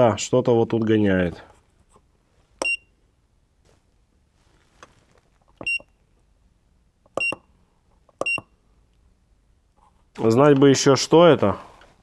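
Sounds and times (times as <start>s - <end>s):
short high beeps: 2.6s - 2.9s, 5.6s - 5.9s.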